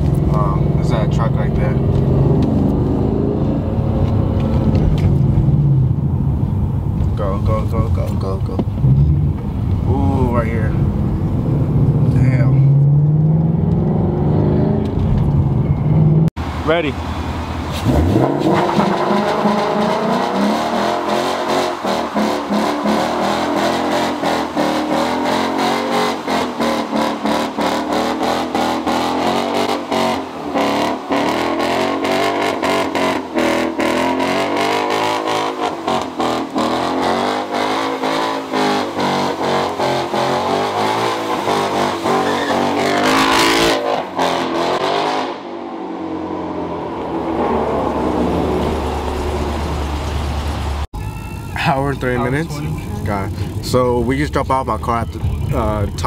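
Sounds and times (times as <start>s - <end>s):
car engine revving hard: 17.8s - 50.9s.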